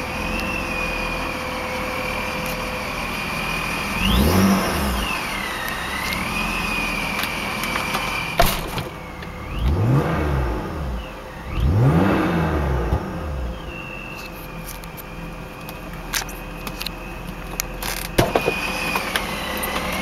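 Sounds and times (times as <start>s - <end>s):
car engine revving: 0.0s - 20.0s
supercharger whine: 0.0s - 20.0s.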